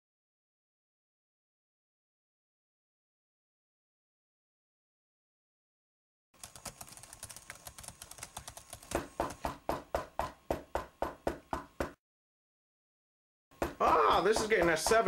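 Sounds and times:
rapid sharp knocks: 0:06.8 - 0:12.0, 0:13.5 - 0:15.0.

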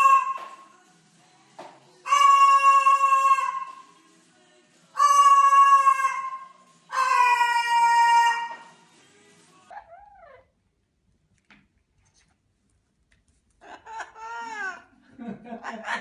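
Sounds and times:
cockatoo calling: 0:00.0 - 0:00.6, 0:02.0 - 0:03.9, 0:05.0 - 0:08.7.

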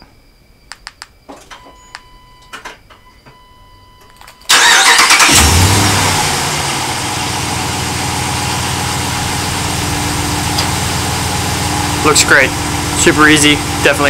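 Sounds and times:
truck engine starting and idling: 0:04.4 - 0:14.0.

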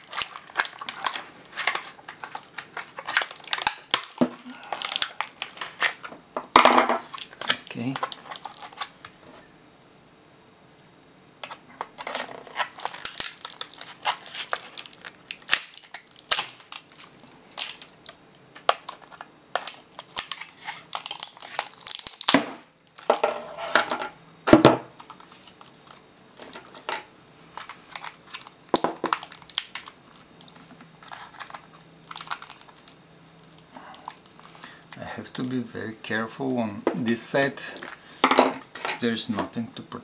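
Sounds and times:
plastic cracking and snapping: 0:00.0 - 0:06.2, 0:07.0 - 0:09.2, 0:11.4 - 0:23.1, 0:27.6 - 0:35.5.

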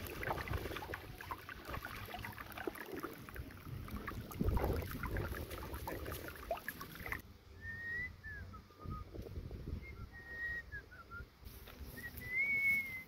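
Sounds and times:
wind buffeting microphone: 0:03.6 - 0:06.1, 0:08.8 - 0:10.4.

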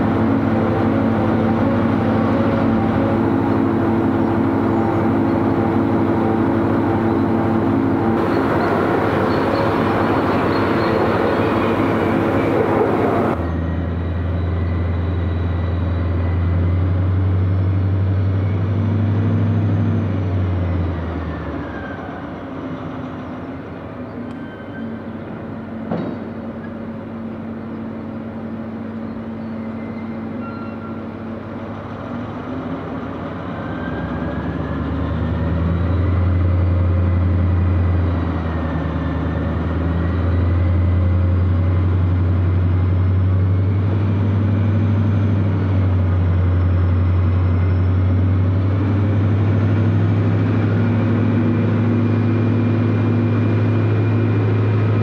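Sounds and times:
diesel locomotive engine humming: 0:00.0 - 0:55.0
loud rushing noise: 0:07.9 - 0:13.4.

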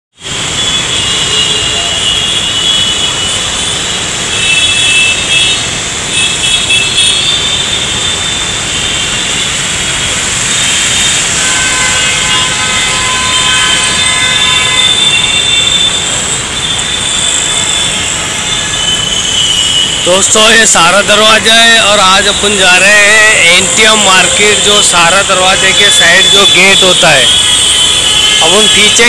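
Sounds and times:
road traffic: 0:00.1 - 0:29.0.

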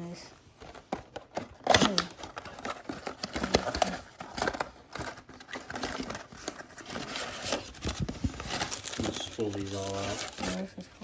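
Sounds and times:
cardboard box rustling and clicks: 0:00.6 - 0:10.6.

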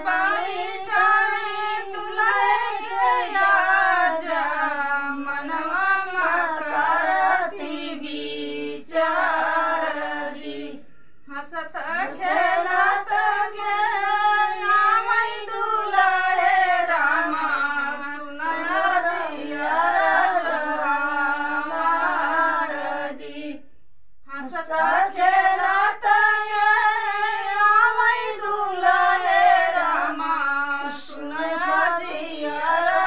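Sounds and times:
women singing folk song unaccompanied: 0:00.0 - 0:33.0.

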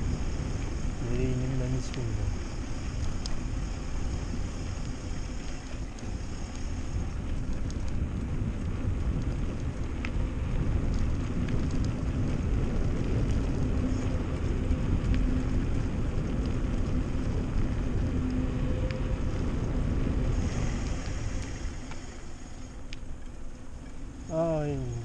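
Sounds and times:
bike tyre rumble: 0:00.0 - 0:25.0
wind buffeting microphone: 0:00.0 - 0:25.0
faint clicks and rattles: 0:04.6 - 0:24.2.

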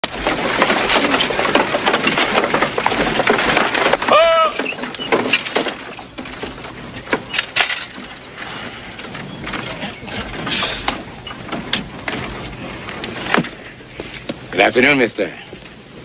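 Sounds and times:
horse hooves clattering: 0:00.0 - 0:16.0
wooden wagon rattling and creaking: 0:00.0 - 0:16.0.

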